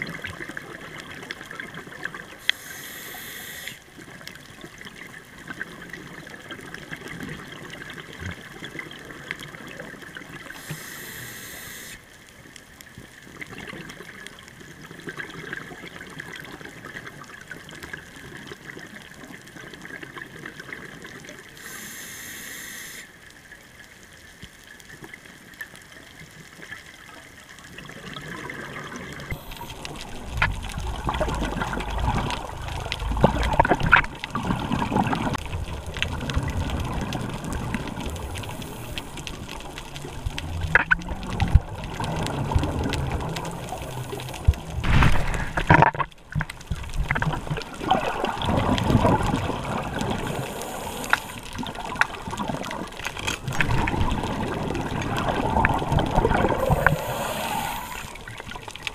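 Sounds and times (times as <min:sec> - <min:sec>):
crackling exhaled bubbles: 0:00.0 - 0:58.9
low rush of water and bubbles: 0:00.0 - 0:58.9
diver inhaling through regulator: 0:02.4 - 0:03.8, 0:10.6 - 0:12.0, 0:21.6 - 0:23.1, 0:50.1 - 0:51.5, 0:56.3 - 0:58.3.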